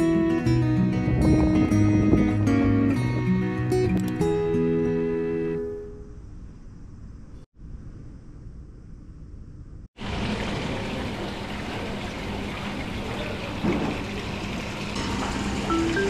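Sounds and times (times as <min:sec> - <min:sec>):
water rushing: 0:10.0 - 0:16.0.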